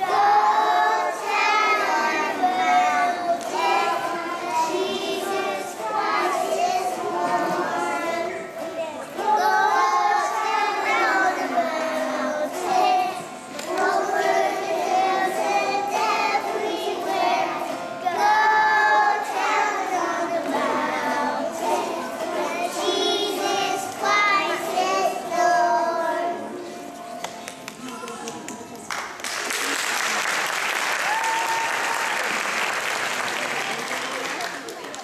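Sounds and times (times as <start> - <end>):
children singing: 0.0 - 26.9.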